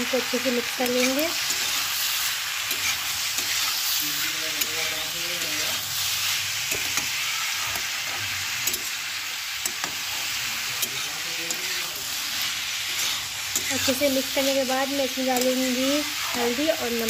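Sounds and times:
vegetables sizzling in oil: 0.0 - 17.0
spatula scraping metal pan: 2.6 - 8.9, 9.6 - 17.0.

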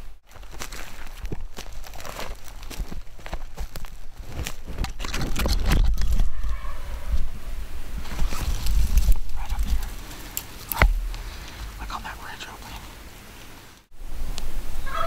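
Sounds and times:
footsteps through dry grass: 0.0 - 7.3, 7.9 - 13.6
sharp knock: 10.7 - 11.3.

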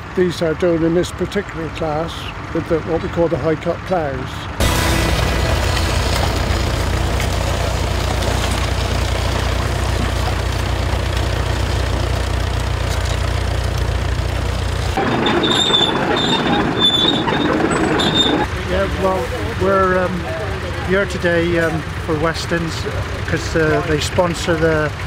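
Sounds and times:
tractor engine running: 0.0 - 25.0
crawler tracks clattering and squeaking: 14.7 - 19.0.

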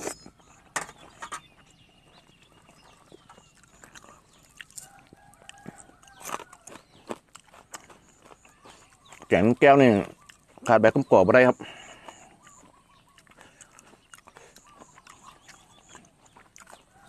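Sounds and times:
man chewing: 0.0 - 10.8, 11.7 - 17.0.

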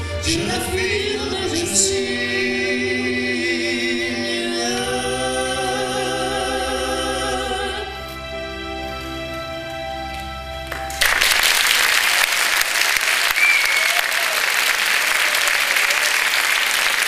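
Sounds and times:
audience applause: 10.7 - 17.0.

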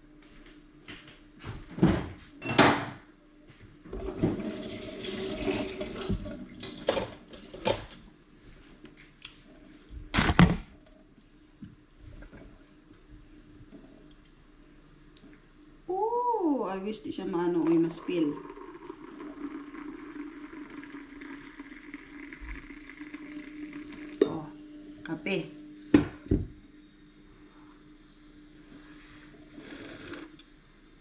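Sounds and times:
running water: 4.1 - 7.4, 17.6 - 24.4.

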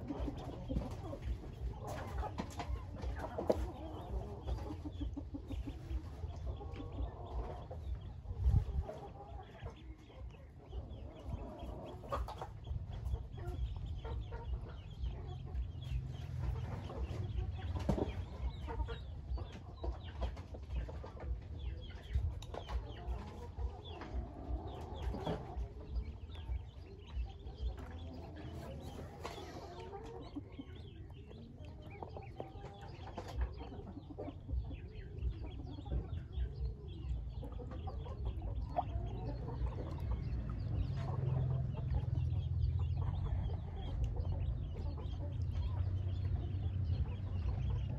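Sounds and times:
ducklings peeping: 0.0 - 47.9.

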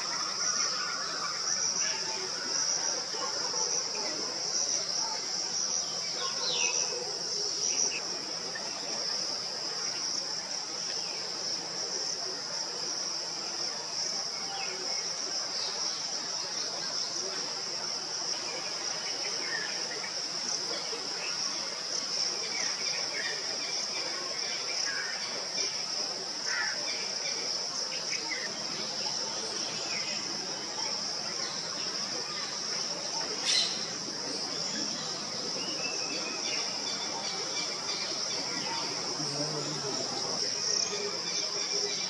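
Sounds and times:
insect chorus droning: 0.0 - 42.0
faint bird chirps: 33.4 - 39.0.

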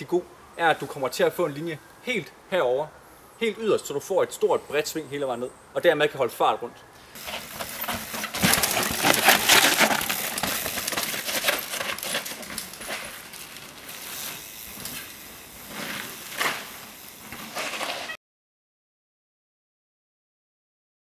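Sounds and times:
bike rattling clicks: 7.2 - 17.9
bike tyres crunching on dirt: 7.2 - 18.2.

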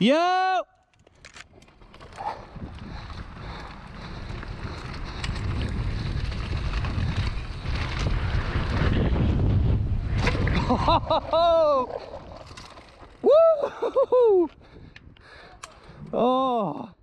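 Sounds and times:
bike clicks and rattles: 0.8 - 16.8
bike tyres rolling on dirt: 1.0 - 16.8
wind rushing over microphone: 2.2 - 13.5.

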